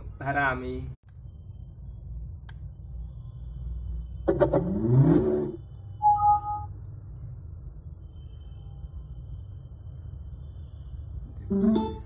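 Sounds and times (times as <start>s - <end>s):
short steady beep: 6.0s - 6.8s.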